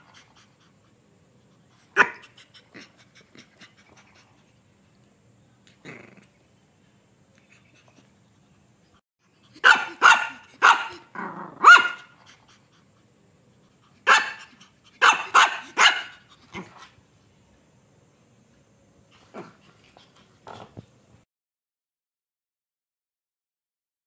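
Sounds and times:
puppy barking in sharp yaps: 9.6 - 11.0, 11.6 - 12.1, 14.1 - 16.2.

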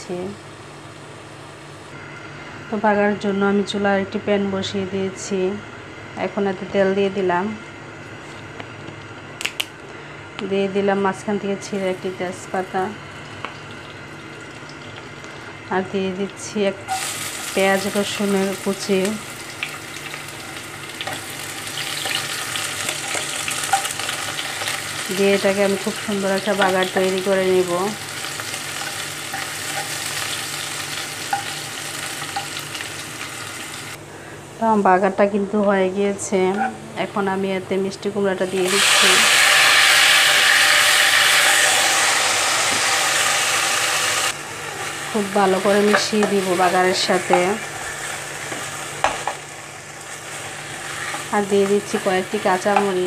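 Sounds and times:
onion sizzling in hot oil: 11.6 - 34.0, 38.3 - 53.0.

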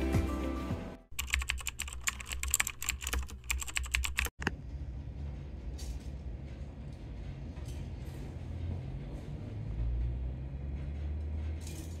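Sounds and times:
soft music: 0.0 - 1.1
laptop keyboard typing: 1.1 - 4.4.

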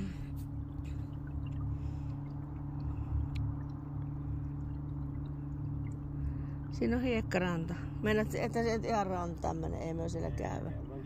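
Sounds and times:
boat motor humming: 0.0 - 11.0
water gurgling: 0.0 - 11.0
light ticks on hull: 0.7 - 6.1.

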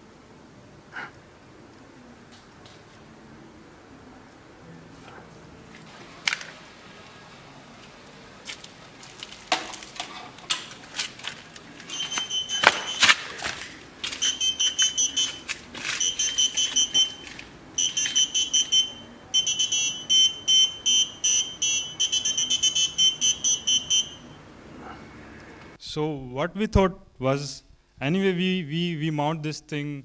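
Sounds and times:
electronic alarm beeping: 11.9 - 13.2, 14.1 - 24.4.

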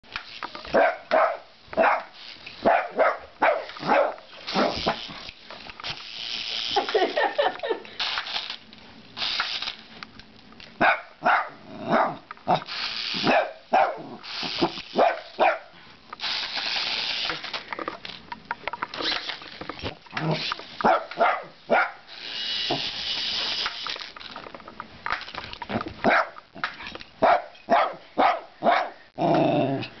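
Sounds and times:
dog barking: 0.7 - 4.8, 10.8 - 12.2, 13.3 - 14.1, 15.0 - 15.7, 20.8 - 22.0, 26.0 - 26.4, 27.2 - 29.0
helicopter motor whirring: 22.1 - 24.3.

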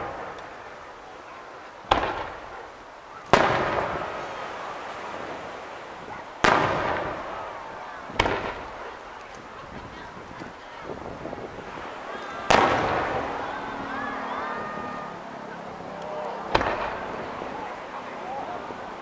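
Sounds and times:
firework shells bursting: 1.6 - 4.4, 6.3 - 13.4, 16.5 - 17.2.

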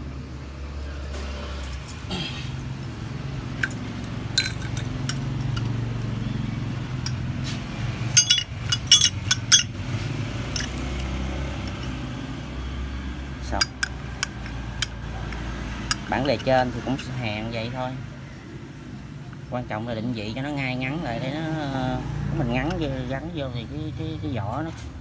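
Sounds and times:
pliers clinking on metal lighter: 8.2 - 9.7.

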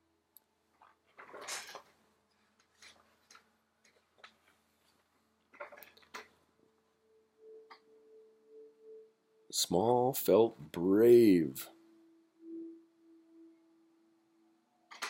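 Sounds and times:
soft clicks and rustles: 0.7 - 6.4
book page turning: 0.8 - 5.0.

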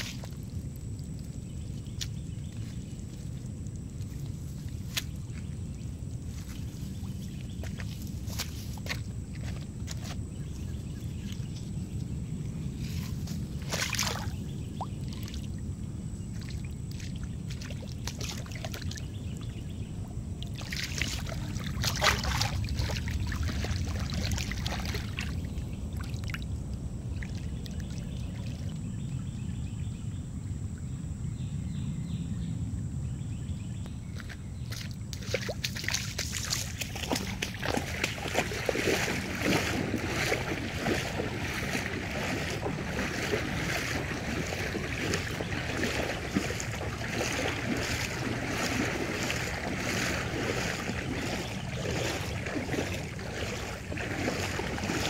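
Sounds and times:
rustling in wet grass: 0.0 - 15.6, 20.4 - 28.9, 34.2 - 55.0
water sloshing and lapping: 0.0 - 29.6, 34.1 - 55.0
wind rumble on microphone: 0.0 - 55.0.

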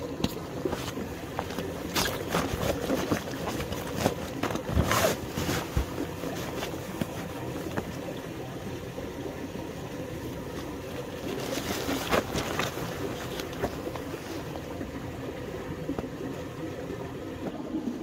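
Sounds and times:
nylon backpack rustling: 0.6 - 8.0, 10.5 - 14.6.

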